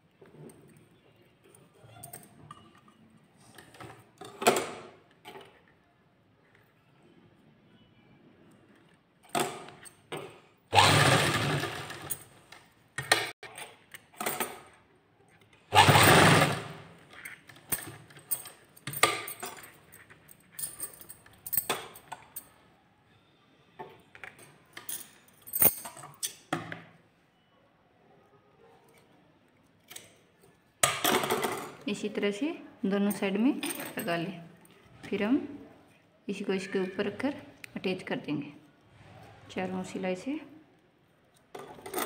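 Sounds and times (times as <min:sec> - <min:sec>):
sewing machine stitching: 0:10.7 - 0:12.1, 0:15.7 - 0:17.0.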